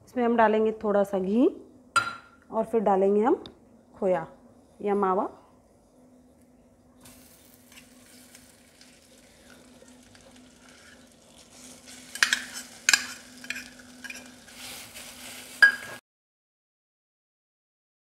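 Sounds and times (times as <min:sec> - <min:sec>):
faint sizzling in hot fat: 0:07.0 - 0:16.0
spoon scraping a pan: 0:10.4 - 0:16.0.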